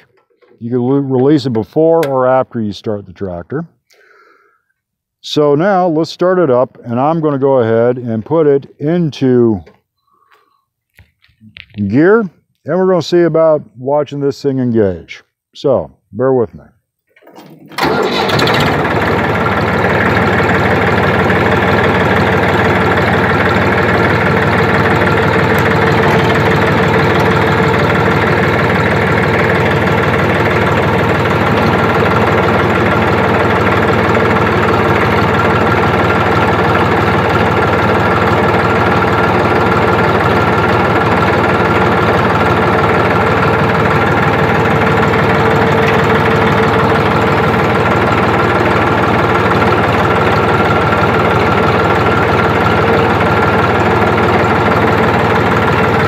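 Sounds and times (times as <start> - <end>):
tractor engine running: 0.0 - 3.6, 17.1 - 56.0.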